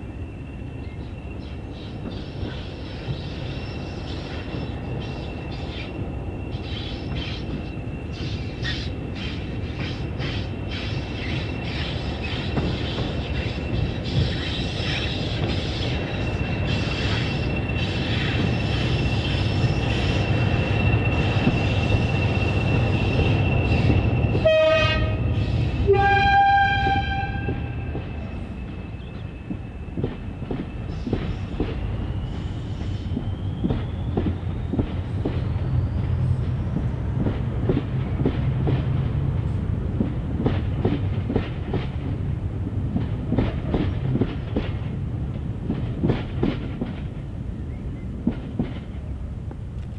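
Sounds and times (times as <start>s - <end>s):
diesel locomotive engine: 0.0s - 49.9s
two-tone train horn: 24.3s - 28.0s.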